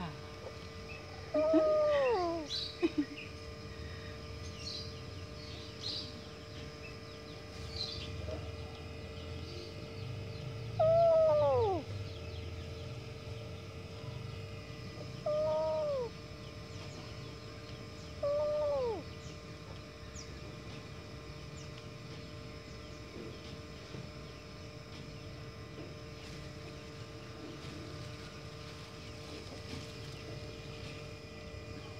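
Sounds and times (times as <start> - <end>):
kitten meowing: 1.4 - 2.5, 10.8 - 11.8, 15.2 - 16.1, 18.2 - 19.0.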